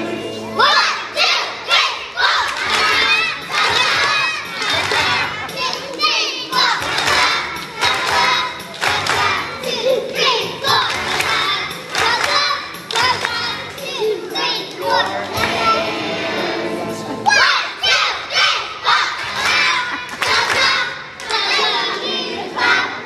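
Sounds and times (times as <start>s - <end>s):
backing music: 0.0s - 23.0s
children singing loudly: 0.0s - 23.0s
hand claps: 2.4s - 9.8s, 10.7s - 14.0s, 19.1s - 21.6s.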